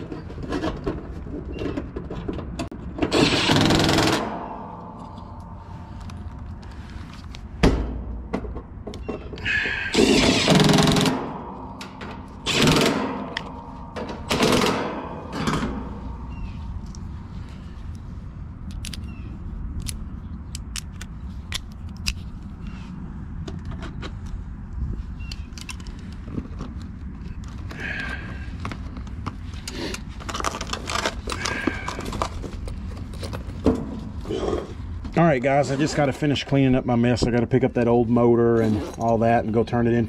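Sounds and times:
impact driver bursts: 0:03.1 - 0:04.5, 0:09.4 - 0:11.4, 0:12.4 - 0:13.4.

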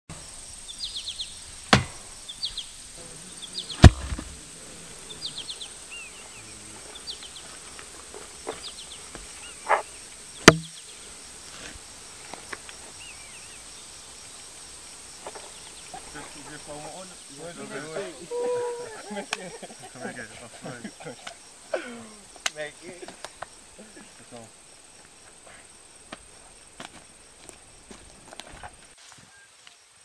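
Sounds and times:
birds chirping: 0:00.1 - 0:29.5
sharp loud impacts: 0:03.8 - 0:04.4, 0:10.4 - 0:10.8.

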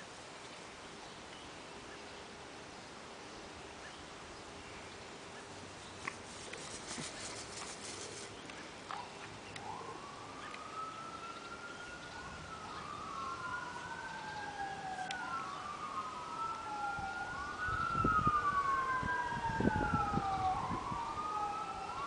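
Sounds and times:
emergency siren wailing: 0:09.0 - 0:22.0.

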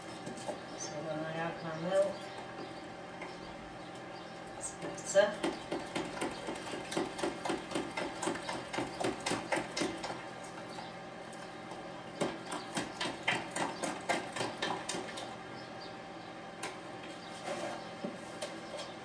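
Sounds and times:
utensil beating batter in plastic jug: 0:04.8 - 0:10.8, 0:12.2 - 0:15.4.

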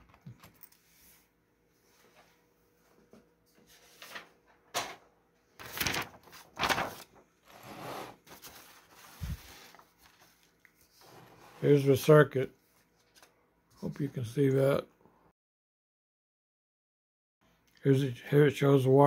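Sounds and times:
paper rustling and sliding: 0:03.5 - 0:04.6, 0:05.6 - 0:11.8.

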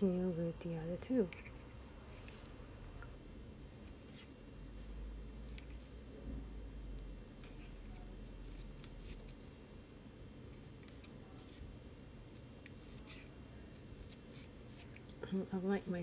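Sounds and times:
steady low hum: 0:00.0 - 0:16.0
yarn rubbing: 0:07.3 - 0:09.7, 0:10.4 - 0:16.0.

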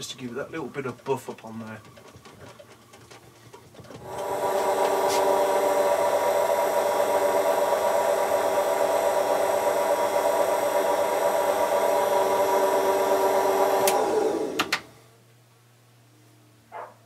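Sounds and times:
lathe machinery whining: 0:03.8 - 0:15.0
click: 0:13.8 - 0:14.0.

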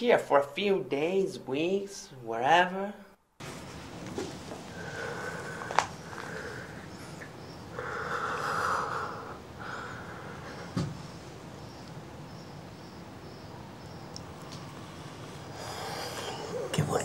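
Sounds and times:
man breathing heavily: 0:04.6 - 0:10.8, 0:15.4 - 0:16.7.

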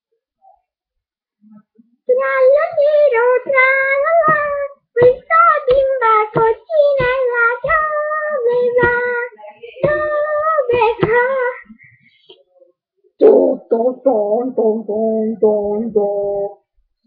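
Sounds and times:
high voice singing unaccompanied: 0:02.1 - 0:11.8, 0:13.2 - 0:16.7.

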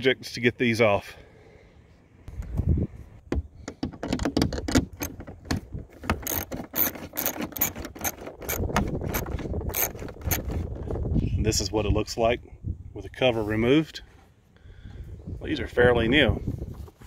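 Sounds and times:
ratchet driver clicking: 0:06.0 - 0:10.5.

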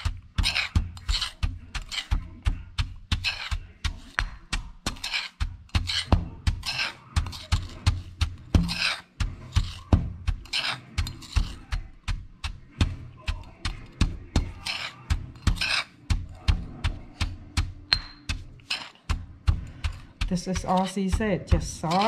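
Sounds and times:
gritty scrape of pestle: 0:00.0 - 0:22.0
stone pestle pounding in mortar: 0:00.0 - 0:22.0.

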